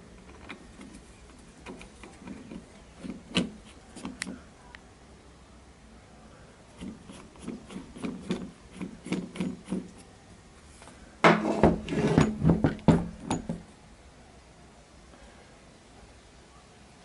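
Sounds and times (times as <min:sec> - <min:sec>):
metal clicks and knocks: 0:00.1 - 0:04.4, 0:11.3 - 0:13.7
heavy metal clunks with ringing rattle: 0:11.3 - 0:13.7.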